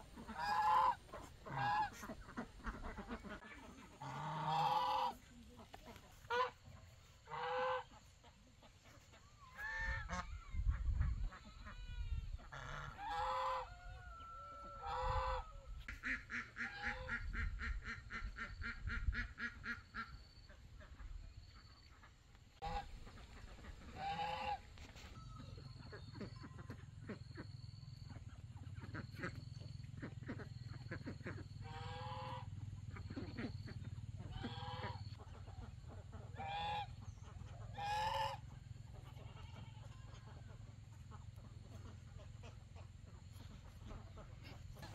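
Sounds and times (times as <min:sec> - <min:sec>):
geese honking: 0:00.0 - 0:08.3, 0:11.1 - 0:19.8, 0:22.6 - 0:25.2, 0:30.1 - 0:44.9.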